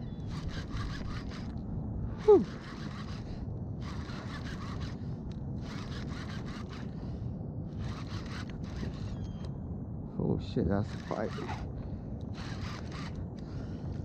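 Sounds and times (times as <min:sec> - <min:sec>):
fishing reel rasping: 0:00.1 - 0:01.6, 0:02.2 - 0:07.1, 0:07.8 - 0:09.4, 0:10.9 - 0:11.7, 0:12.3 - 0:13.8.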